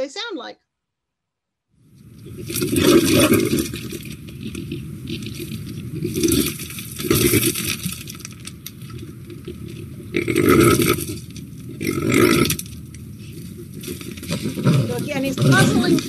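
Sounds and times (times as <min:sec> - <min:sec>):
wild boar grunting: 0:02.1 - 0:07.9, 0:09.4 - 0:16.0.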